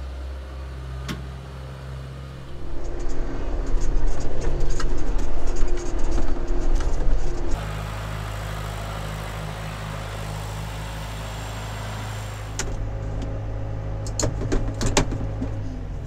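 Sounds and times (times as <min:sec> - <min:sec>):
diesel tractor engine idling: 0:07.5 - 0:16.0
sharp clicks and knocks: 0:14.0 - 0:15.6.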